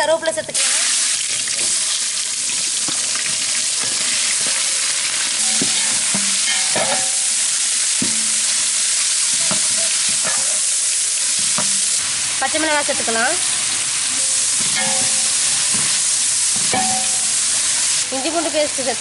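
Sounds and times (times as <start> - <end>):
onions sizzling in hot oil: 0.0 - 19.0
metal ladle knocking pot: 5.4 - 7.1, 14.6 - 16.0, 16.6 - 17.2.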